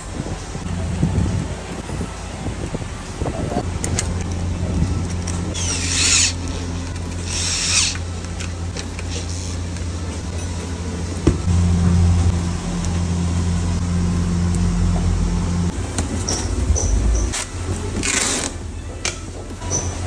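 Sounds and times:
steady low hum: 0.0s - 19.0s
sharp clicks of parts handled: 3.7s - 9.9s.

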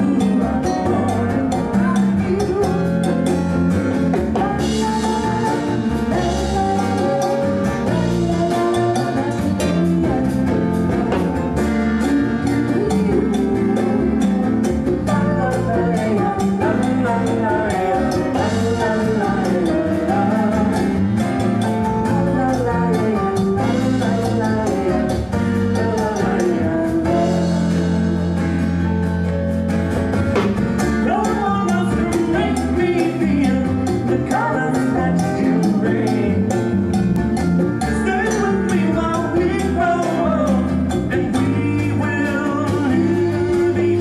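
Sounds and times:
woman singing: 0.0s - 3.4s, 4.2s - 21.2s, 22.0s - 28.3s, 31.0s - 36.6s, 38.0s - 44.0s
acoustic guitars: 0.0s - 44.0s
light percussion beat: 0.0s - 44.0s.

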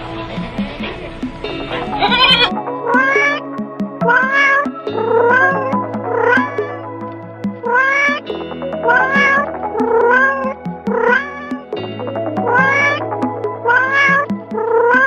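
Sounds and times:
background music with low notes: 0.0s - 15.0s
cat meowing: 2.0s - 2.6s.

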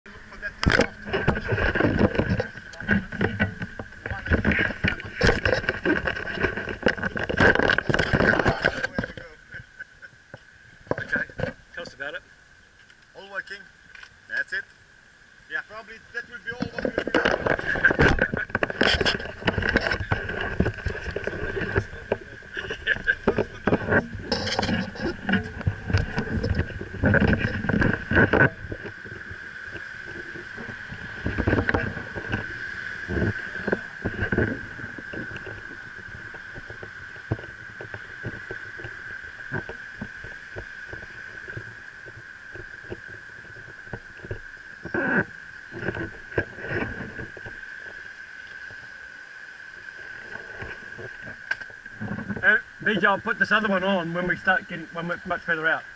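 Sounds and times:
handling noise on microphone: 0.4s - 9.6s, 16.4s - 48.8s, 49.9s - 54.3s
high-pitched drone: 17.2s - 49.9s.

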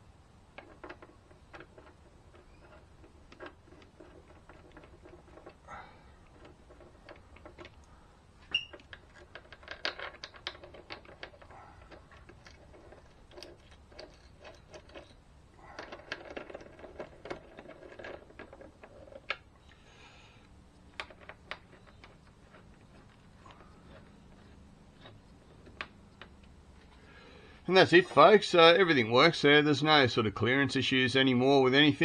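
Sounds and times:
metal parts and tools clicking: 0.6s - 19.6s, 20.9s - 27.0s.

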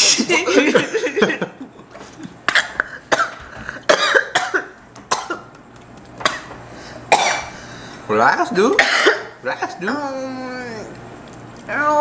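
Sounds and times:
person coughing: 2.4s - 5.5s, 6.2s - 6.5s, 7.1s - 7.5s, 8.8s - 9.8s.

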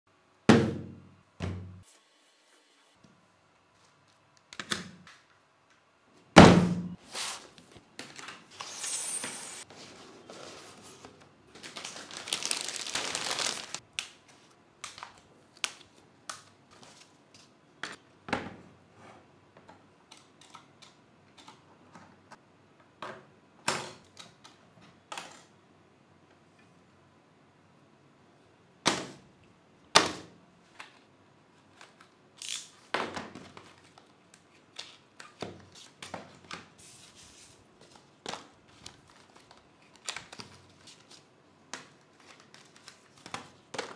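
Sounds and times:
packaging rustling: 7.1s - 13.8s.

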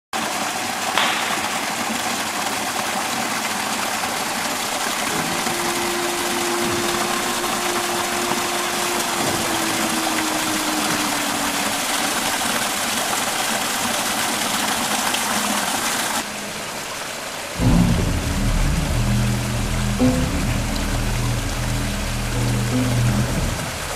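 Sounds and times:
small waterfall splashing: 0.1s - 23.9s
music: 17.6s - 23.9s.

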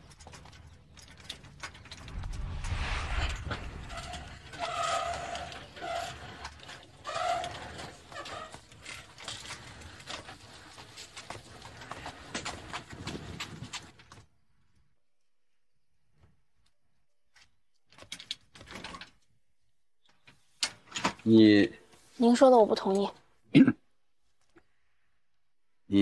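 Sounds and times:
heavy rumble: 2.0s - 5.2s.

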